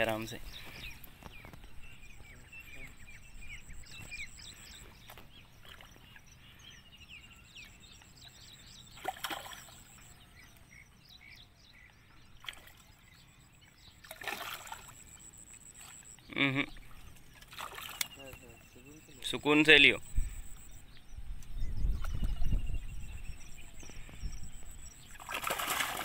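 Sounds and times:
small birds chirping: 0.0 - 26.0
fish splashing in water: 9.0 - 10.1, 14.0 - 15.2, 17.4 - 18.2, 25.1 - 26.0.

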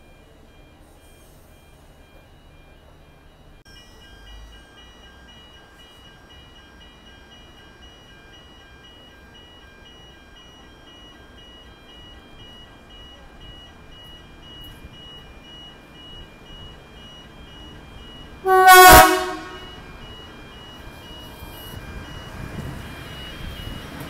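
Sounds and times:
faint electronic beeping: 0.0 - 24.0
horn toot: 18.4 - 19.7.

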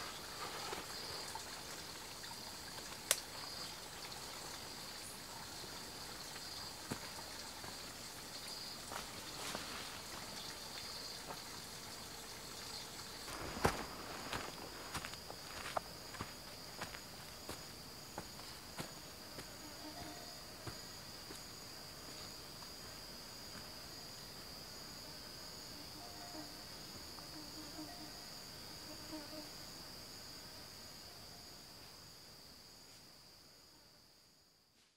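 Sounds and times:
insect pulsing: 0.0 - 31.6
high-pitched insect chorus: 0.0 - 34.9
footsteps on forest floor: 6.8 - 7.8, 8.9 - 10.4, 13.3 - 23.8.

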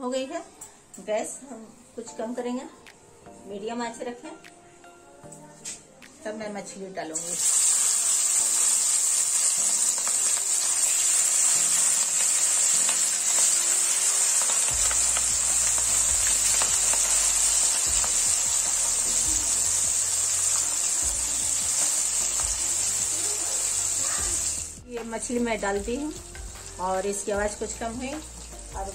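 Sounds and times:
fish sizzling in hot oil: 7.2 - 24.8, 25.8 - 28.9.

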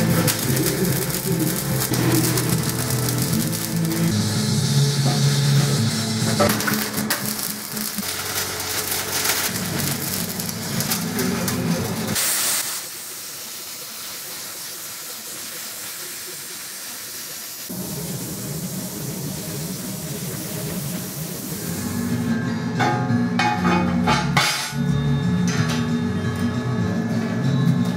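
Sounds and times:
welder crackling and spitting: 0.0 - 21.8
plasma cutter air hiss: 0.0 - 22.3.

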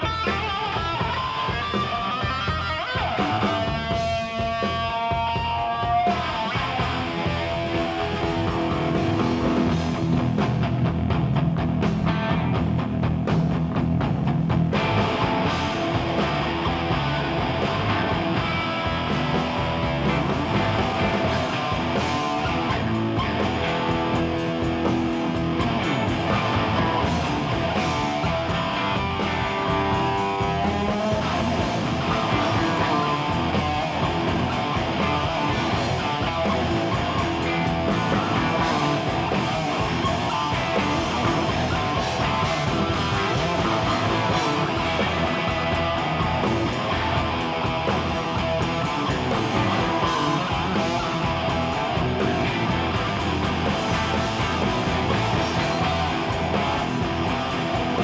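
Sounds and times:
electric guitar lead: 0.0 - 58.0
rock band playing: 0.0 - 58.0.

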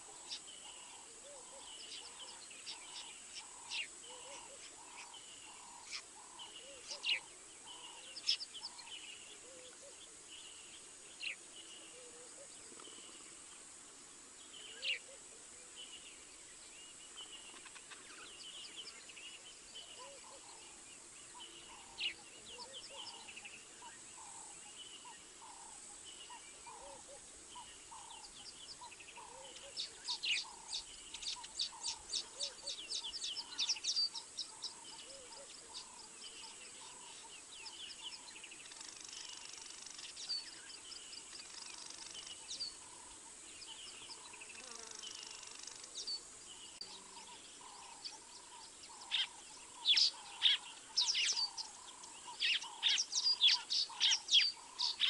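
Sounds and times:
birds whistling: 47.6 - 55.0.

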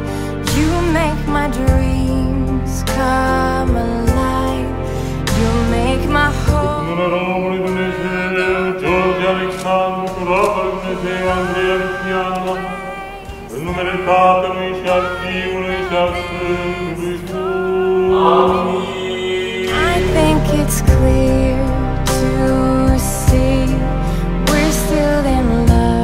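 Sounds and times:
person chanting ornamented melody: 6.1 - 21.9
held drone note: 11.5 - 21.6.

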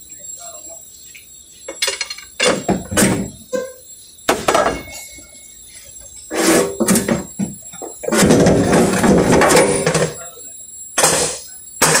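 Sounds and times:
metal tools clanking: 4.4 - 5.4.

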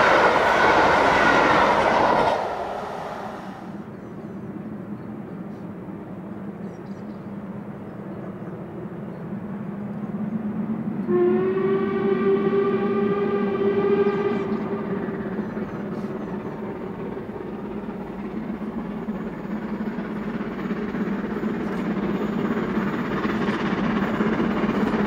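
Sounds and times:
steam whistle: 0.0 - 3.8, 11.0 - 15.4
steam locomotive rumble: 0.0 - 25.0.

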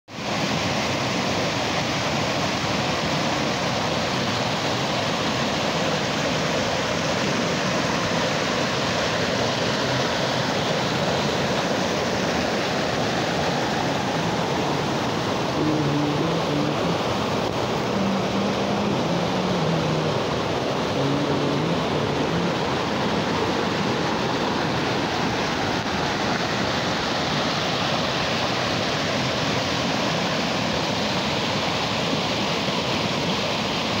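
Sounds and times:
waterfall rushing over rocks: 0.1 - 34.0.

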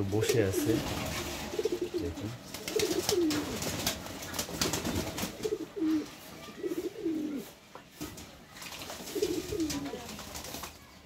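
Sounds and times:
pigeons cooing: 0.0 - 7.5, 9.0 - 10.2
wings flapping: 0.2 - 7.4, 8.0 - 11.0.

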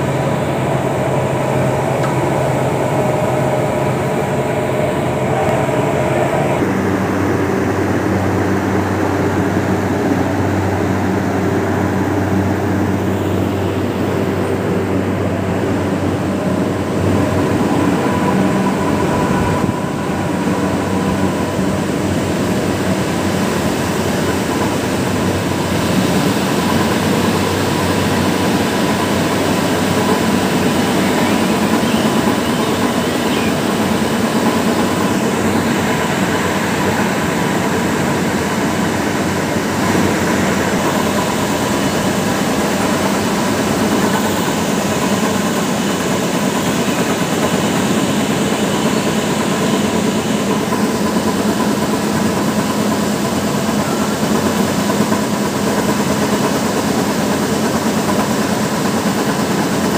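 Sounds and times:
machinery hum and rumble: 0.0 - 59.9.

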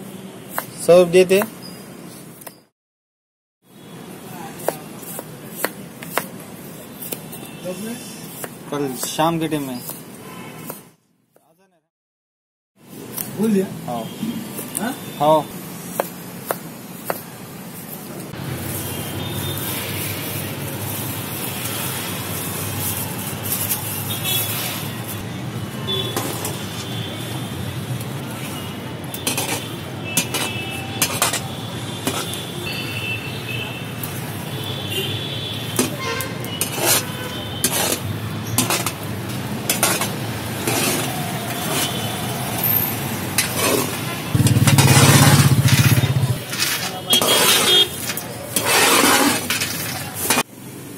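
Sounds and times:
ladle scraping pan: 36.6 - 39.1, 39.7 - 42.0, 44.7 - 50.4.

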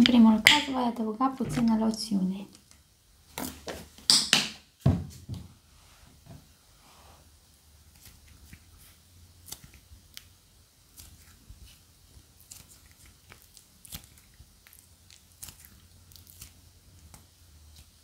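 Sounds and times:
plasticine squishing: 7.8 - 18.0
soft crackles and clicks: 7.9 - 18.0.

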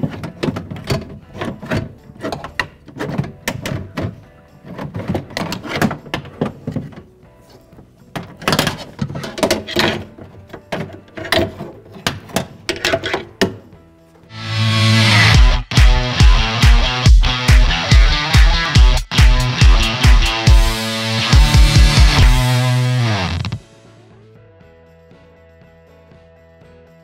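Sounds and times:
metal clanking and scraping: 0.0 - 7.0, 8.2 - 13.4.

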